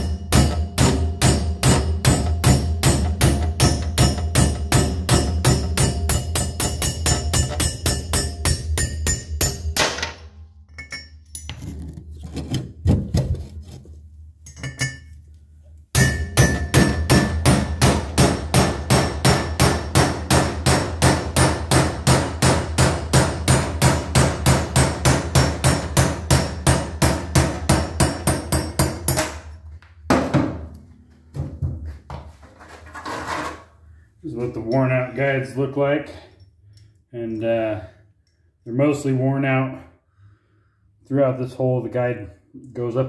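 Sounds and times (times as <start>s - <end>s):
hammer striking metal: 0.0s - 11.2s, 15.9s - 31.6s.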